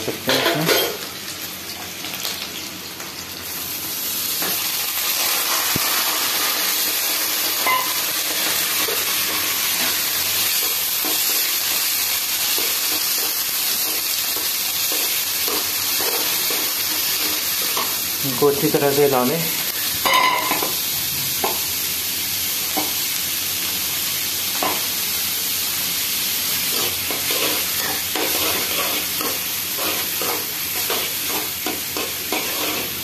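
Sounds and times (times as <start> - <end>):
onions sizzling in hot oil: 0.0 - 33.0.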